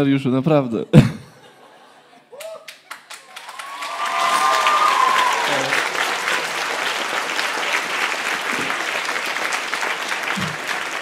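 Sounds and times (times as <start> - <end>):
crowd applauding: 2.3 - 11.0.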